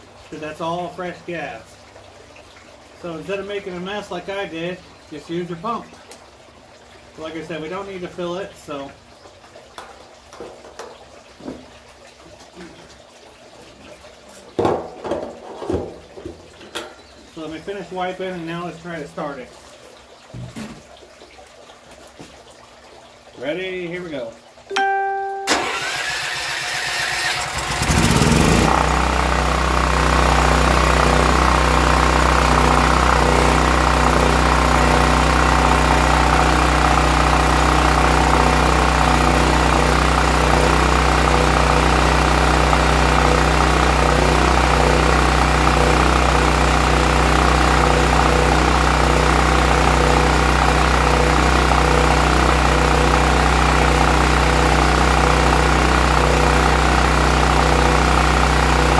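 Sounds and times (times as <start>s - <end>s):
generator engine running steadily: 24.8s - 58.9s
generator engine cranking: 25.5s - 58.9s.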